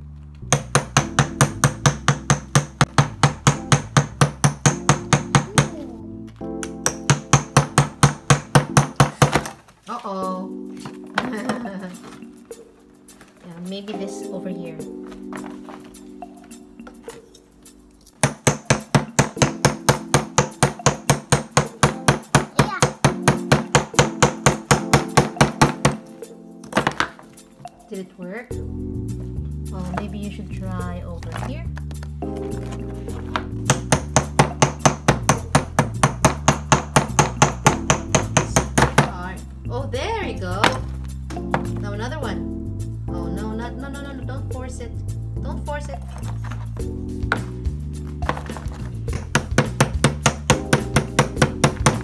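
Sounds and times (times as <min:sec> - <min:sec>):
mallet tapping chisel into plaster: 0:00.5 - 0:05.7, 0:06.6 - 0:09.6, 0:18.2 - 0:26.0, 0:33.3 - 0:39.1, 0:48.3 - 0:52.0.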